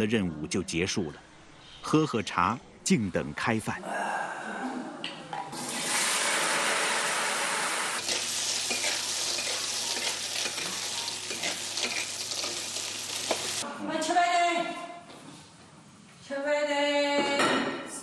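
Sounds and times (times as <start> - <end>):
greens sizzling in hot wok: 5.6 - 13.6
spatula scraping wok: 8.0 - 13.6.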